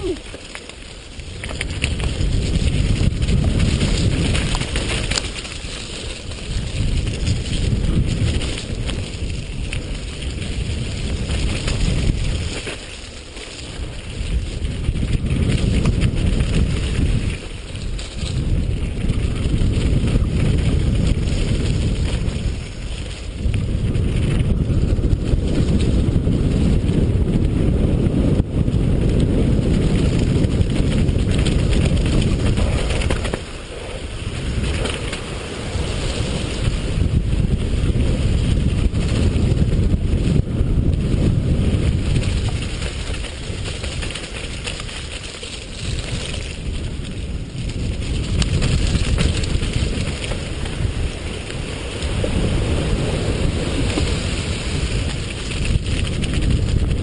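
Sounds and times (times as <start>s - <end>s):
bike tyres rumbling on gravel: 0.0s - 57.0s
wind buffeting microphone: 0.0s - 57.0s.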